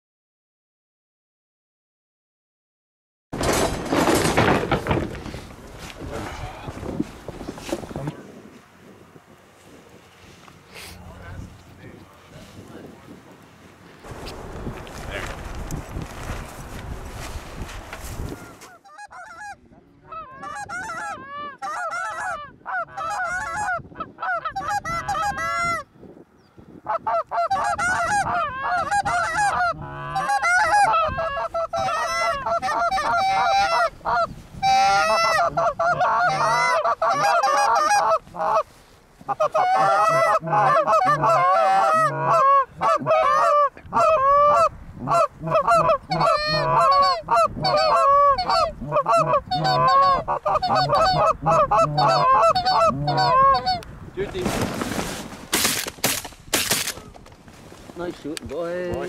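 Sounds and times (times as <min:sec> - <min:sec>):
geese honking and clucking: 0:18.0 - 0:25.9, 0:26.8 - 0:54.4.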